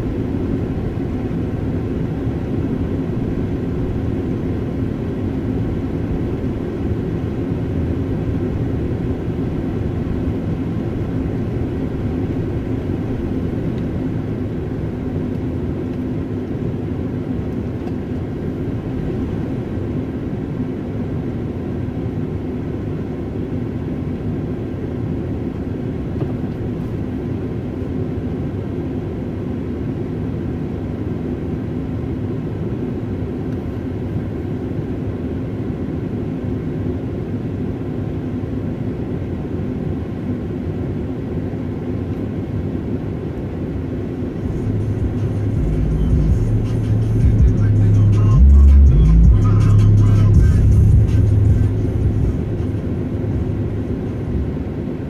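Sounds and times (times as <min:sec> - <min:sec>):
road noise: 0:00.0 - 0:21.5, 0:43.0 - 0:55.0
car engine rumble: 0:00.0 - 0:55.0
faint steady hum: 0:00.0 - 0:55.0.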